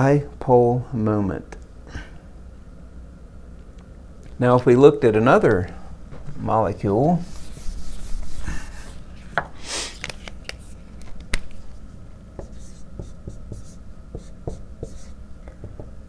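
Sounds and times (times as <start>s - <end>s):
eraser swishing on whiteboard: 7.2s - 9.0s
marker tapping and writing: 12.4s - 15.9s.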